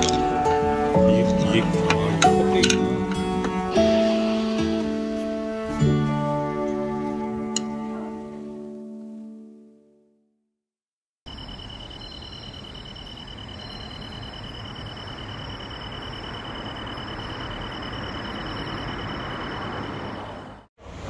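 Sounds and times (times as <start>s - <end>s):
crickets trilling: 11.3s - 20.6s.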